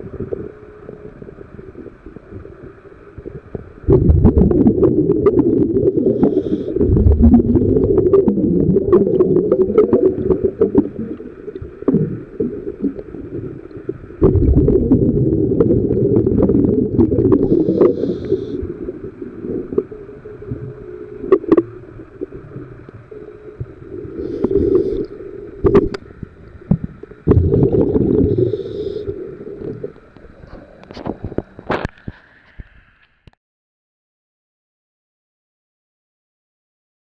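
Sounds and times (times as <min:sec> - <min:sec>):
exhaled bubbles rumbling: 0:00.0 - 0:31.9
diver breathing through regulator: 0:05.8 - 0:07.1, 0:17.3 - 0:19.0, 0:24.0 - 0:25.4, 0:27.6 - 0:29.8.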